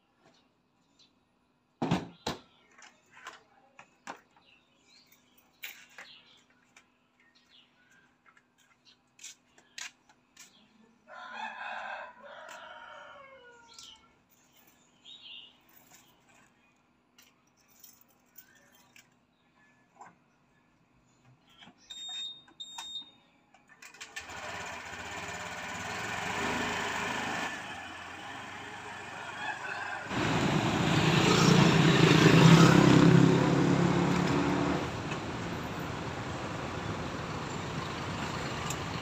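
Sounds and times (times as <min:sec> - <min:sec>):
rooster crowing: 0:11.1 - 0:13.8, 0:27.8 - 0:30.8.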